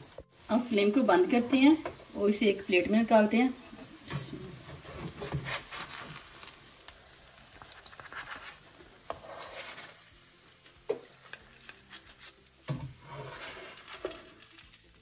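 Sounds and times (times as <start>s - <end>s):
faint sizzle: 0.0s - 15.0s
spatula scraping frying pan: 3.6s - 6.5s, 7.6s - 10.2s, 11.2s - 14.5s.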